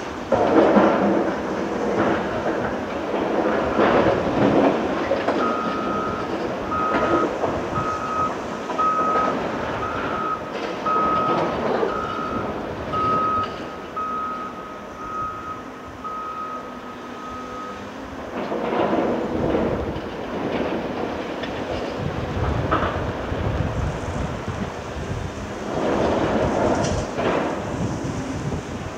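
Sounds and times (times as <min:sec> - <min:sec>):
excavator diesel engine running: 0:00.0 - 0:28.9
back-up alarm beeping: 0:05.4 - 0:17.9.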